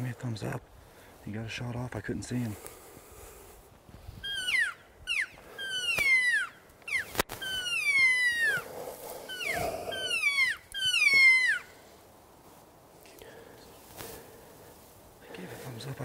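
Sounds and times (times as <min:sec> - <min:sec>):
elk calls: 0:04.2 - 0:11.9.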